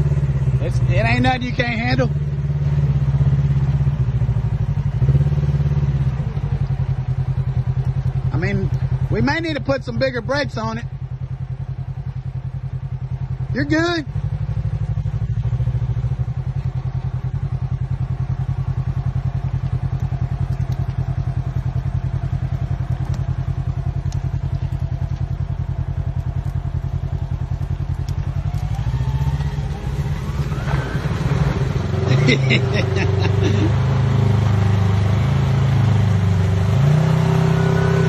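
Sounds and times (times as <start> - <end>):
utility vehicle engine running: 0.0 - 38.0
engine revving up: 27.5 - 38.0.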